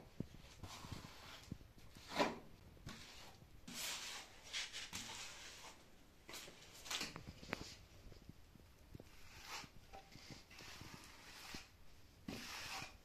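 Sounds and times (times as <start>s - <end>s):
float scraping plaster: 0.4s - 6.5s, 8.9s - 13.0s.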